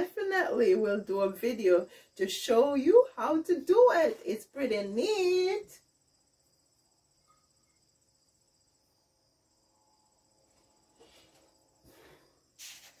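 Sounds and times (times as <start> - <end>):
crickets trilling: 0.0 - 13.0
soft rustles: 10.5 - 13.0.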